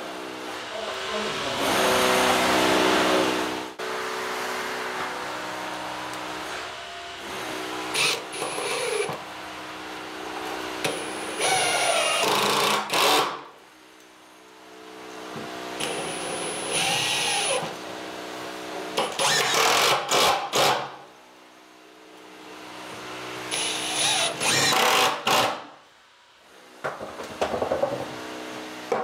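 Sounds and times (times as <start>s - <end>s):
cordless drill driving screws: 11.4s - 13.4s, 15.8s - 17.7s, 19.0s - 20.8s, 23.5s - 25.6s.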